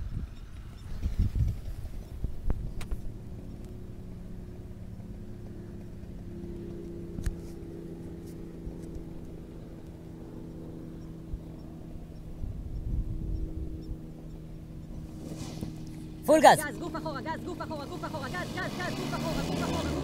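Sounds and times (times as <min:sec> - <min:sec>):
wind rumble on microphone: 0:00.0 - 0:10.2, 0:11.0 - 0:16.2
distant paramotor engine: 0:00.0 - 0:20.0.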